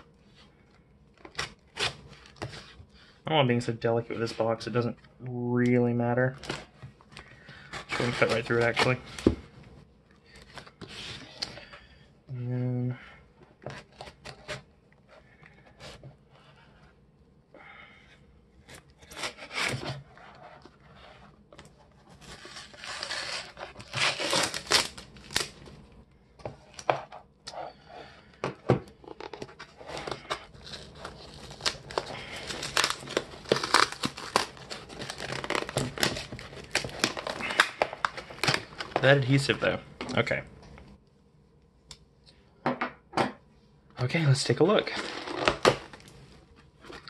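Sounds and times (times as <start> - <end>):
packing tape crinkling: 22.1 - 25.6, 29.0 - 39.2
cardboard box tearing: 22.2 - 25.5, 30.0 - 37.6.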